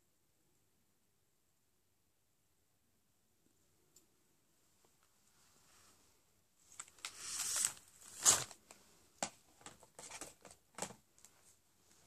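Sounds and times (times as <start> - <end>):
packaging rustling: 6.7 - 11.3.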